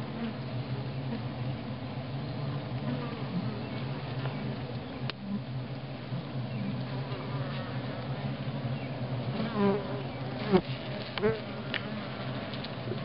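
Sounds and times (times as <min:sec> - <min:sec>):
honeybee colony humming: 0:00.0 - 0:13.0.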